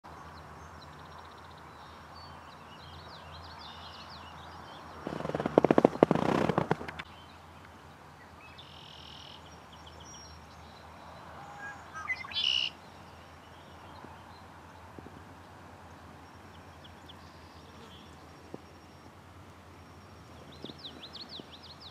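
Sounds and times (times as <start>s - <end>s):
small birds chirping: 0.1s - 19.2s, 19.8s - 21.9s
rapid rattle of clicks: 5.0s - 7.0s.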